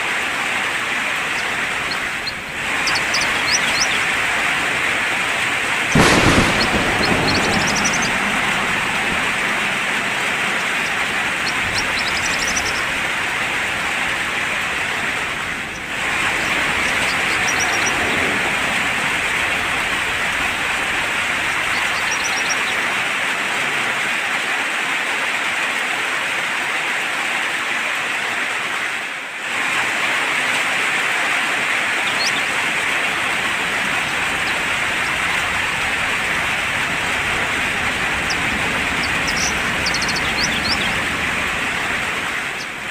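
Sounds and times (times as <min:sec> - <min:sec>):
steady rain: 0:00.0 - 0:42.9
faint bird chirps: 0:01.2 - 0:04.2, 0:10.1 - 0:13.0, 0:38.2 - 0:41.1.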